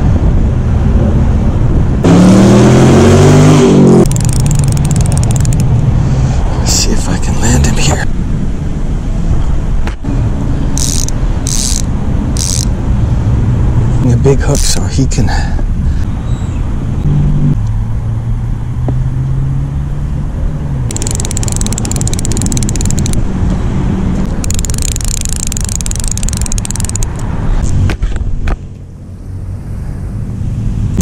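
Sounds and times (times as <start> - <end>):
wind rumble on microphone: 0.0 - 14.7
fishing reel ratcheting: 4.1 - 5.7, 10.8 - 12.7, 20.9 - 23.2, 24.4 - 27.3.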